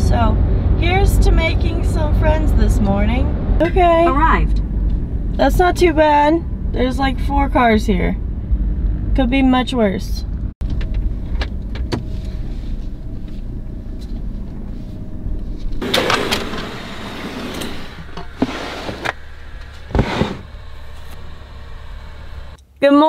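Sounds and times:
engine idling: 10.2 - 22.6.

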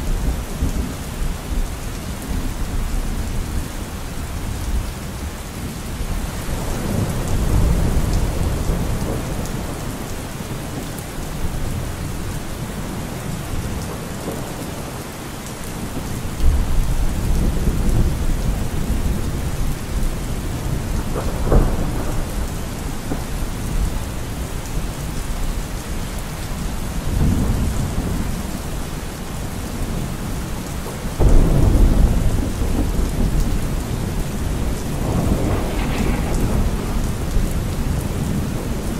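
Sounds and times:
steady rain: 0.0 - 38.9
rolling thunder: 6.6 - 10.0, 16.0 - 24.6, 30.8 - 38.9
thunder crack: 31.2 - 38.8.

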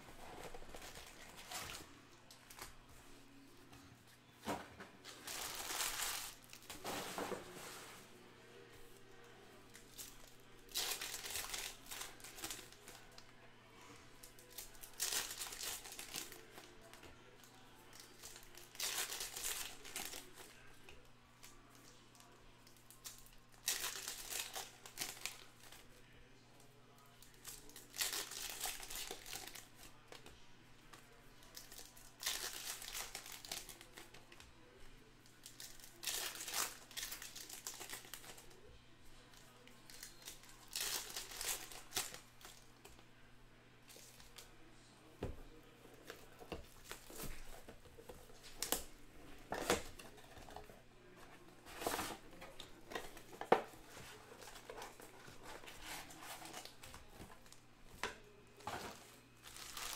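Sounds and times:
foil wrapper crinkling and tearing: 5.1 - 6.7, 10.0 - 13.0, 14.3 - 16.8, 18.1 - 20.5, 23.0 - 25.8, 27.4 - 30.0, 31.5 - 34.2, 35.4 - 38.4, 39.9 - 42.6, 59.4 - 59.9.

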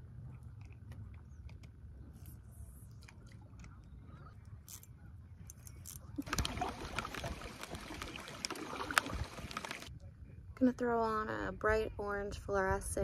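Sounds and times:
paddle splashing in water: 6.2 - 9.9.

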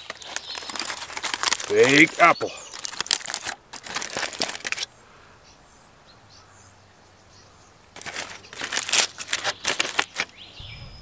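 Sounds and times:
aluminium foil crinkling: 0.0 - 4.9, 8.0 - 10.4.

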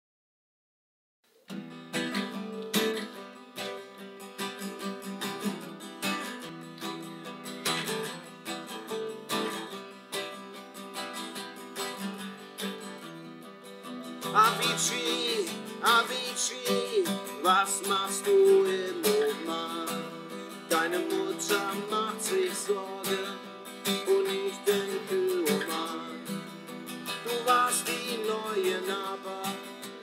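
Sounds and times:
acoustic guitar strumming: 1.5 - 30.0
man singing: 14.2 - 30.0.

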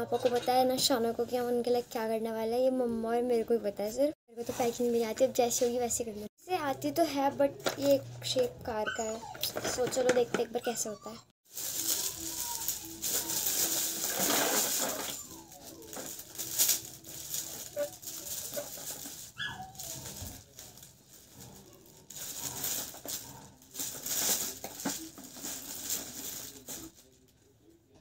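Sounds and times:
plastic wrap rustling and crackling: 4.4 - 6.1, 11.4 - 27.5.

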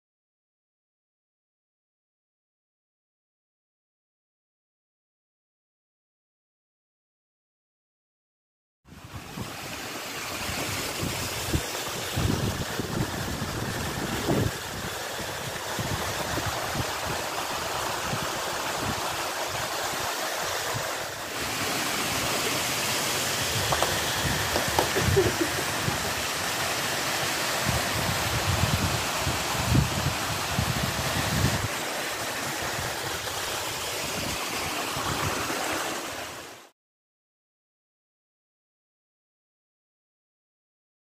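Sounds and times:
waterfall splashing over rocks: 9.0 - 36.7.

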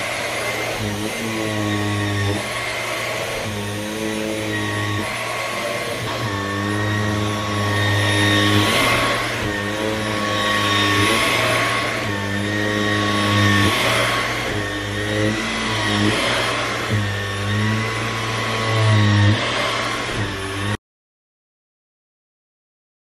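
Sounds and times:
vacuum cleaner suction: 0.0 - 20.8.

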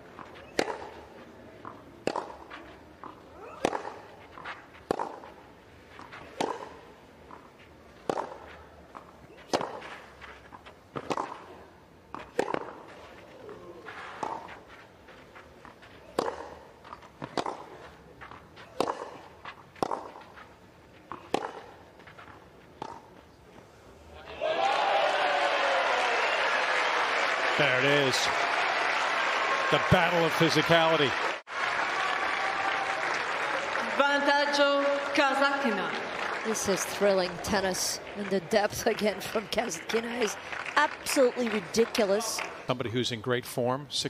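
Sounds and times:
tennis balls struck by rackets: 0.0 - 23.4.

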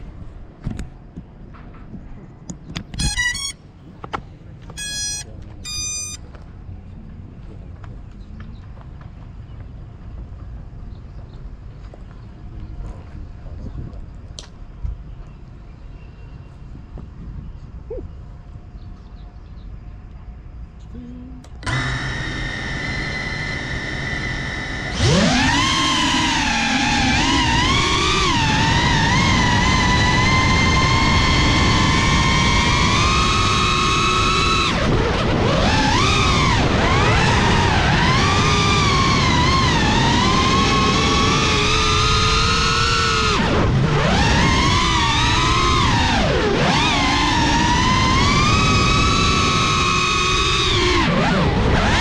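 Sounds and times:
steady low rumble: 0.0 - 21.6
motor startup tones: 2.9 - 4.0, 4.6 - 6.3, 21.0 - 52.0
short beeps: 3.0 - 3.7, 4.7 - 6.3.

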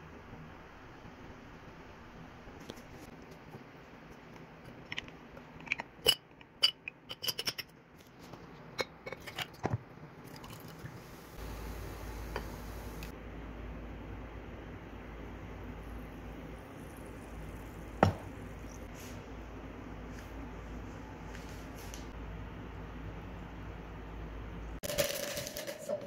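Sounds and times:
soda fizzing: 10.2 - 13.1, 15.8 - 18.9
cordial pouring over ice: 15.8 - 18.9, 24.8 - 26.0
ice cubes clinking into glass: 24.8 - 26.0.

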